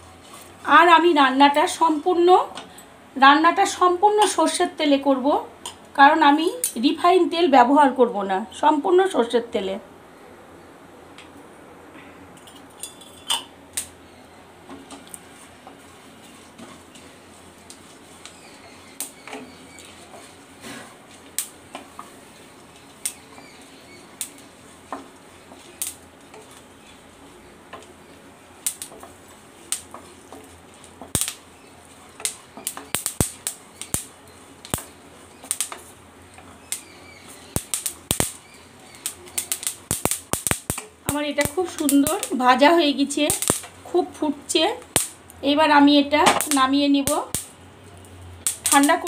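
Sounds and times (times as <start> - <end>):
seeds popping in a hot pan: 12.8 - 14.1, 14.7 - 45.4, 46.2 - 49.0.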